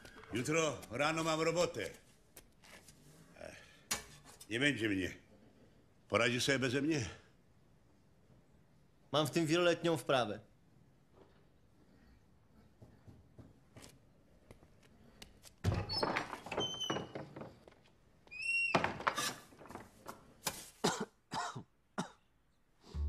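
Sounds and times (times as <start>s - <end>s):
man coughing: 20.8s - 22.2s.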